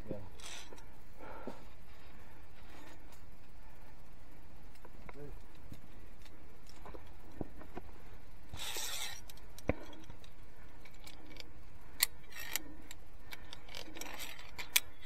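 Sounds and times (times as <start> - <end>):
carabiners clinking on steel cable: 0.3 - 0.8, 8.5 - 15.0.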